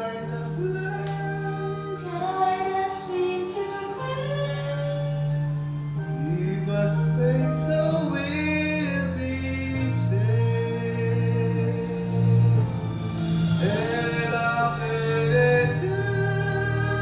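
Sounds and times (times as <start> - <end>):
karaoke backing track: 0.0 - 17.0
long held bass notes: 4.2 - 17.0.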